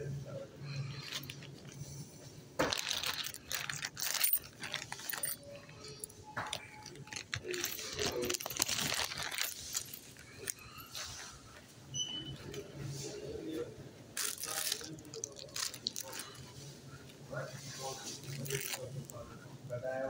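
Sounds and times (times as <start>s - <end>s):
small objects rustling and clattering: 0.9s - 1.8s, 2.6s - 11.2s, 14.2s - 16.5s, 17.8s - 19.2s.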